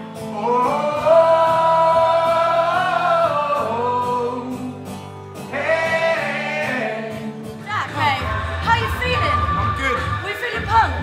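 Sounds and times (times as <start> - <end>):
man singing: 0.0 - 8.4.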